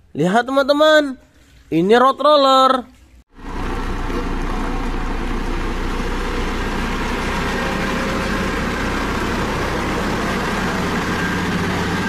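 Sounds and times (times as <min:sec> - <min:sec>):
diesel engine running: 0:03.3 - 0:12.0.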